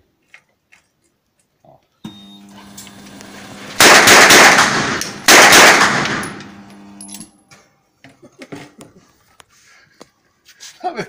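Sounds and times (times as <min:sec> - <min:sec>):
steady low hum: 0:02.0 - 0:07.5
submachine gun automatic fire: 0:03.8 - 0:06.5.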